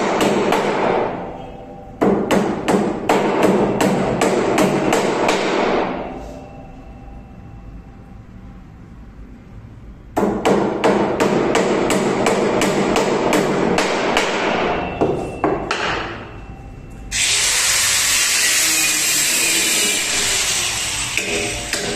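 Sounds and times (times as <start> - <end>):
hammer striking wood: 0.0 - 1.1, 2.0 - 5.8, 10.2 - 16.2, 21.2 - 21.9
power tool running: 17.1 - 21.9.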